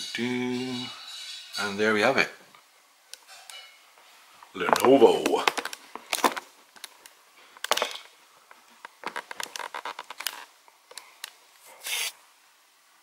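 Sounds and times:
short scrape: 11.7s - 12.2s.

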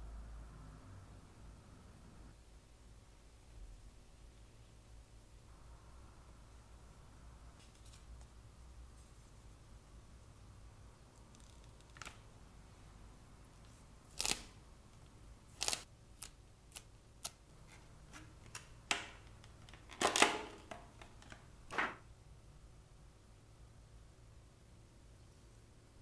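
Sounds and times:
sticker peeling rustle: 13.7s - 14.6s, 15.5s - 18.7s.

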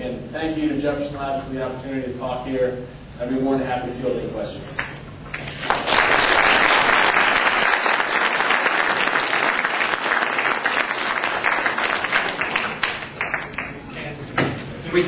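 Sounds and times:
audience applauding: 5.3s - 13.9s.

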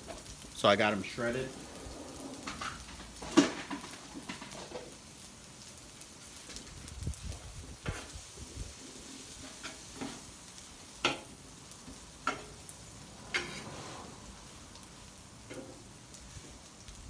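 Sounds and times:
food sizzling: 0.0s - 17.0s
metal spatula scraping on griddle: 7.8s - 10.4s, 11.0s - 14.6s, 15.4s - 16.0s.

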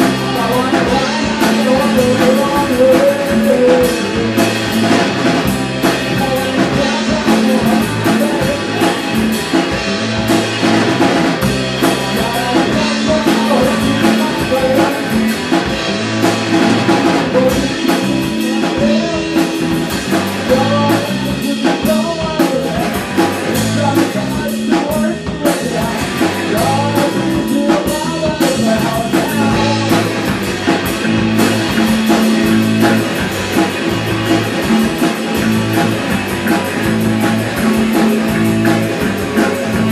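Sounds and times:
singer singing: 0.0s - 9.8s, 10.5s - 33.3s
drum kit with cymbals: 0.0s - 39.9s
electric bass: 0.0s - 39.9s
electric guitar: 0.0s - 39.9s.

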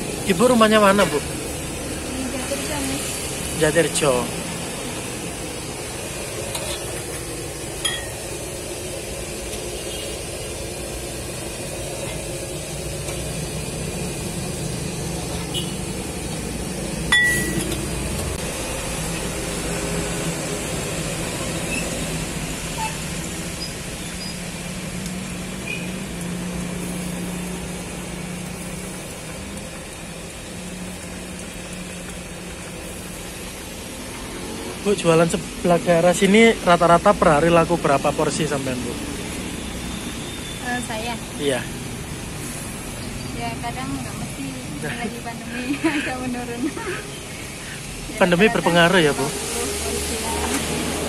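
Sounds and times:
soup boiling: 0.0s - 2.1s, 3.0s - 40.5s
metal ladle clinks: 7.8s - 8.2s, 17.1s - 17.8s.

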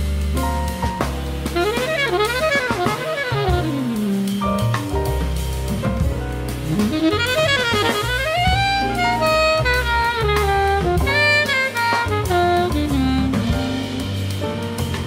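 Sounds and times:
bass: 0.0s - 15.0s
drum kit with cymbals: 0.0s - 15.0s
jazz saxophone: 0.0s - 15.0s.

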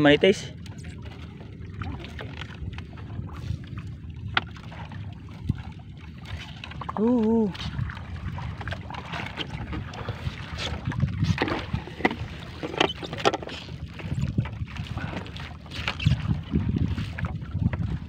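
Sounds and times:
wind rumbling on microphone: 0.0s - 18.0s.

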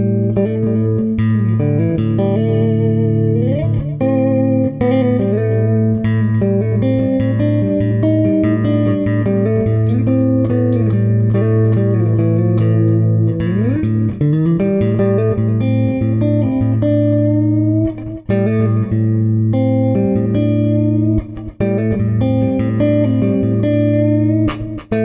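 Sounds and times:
guitar slide: 0.0s - 25.0s
plucked guitar notes: 0.0s - 25.0s.

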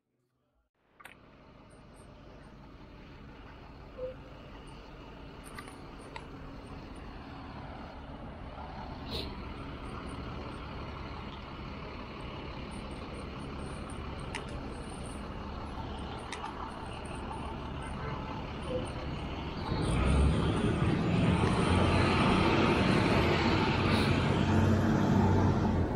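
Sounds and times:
traffic rumble: 0.8s - 25.9s
sharp clicks: 14.2s - 14.7s, 16.0s - 17.2s.

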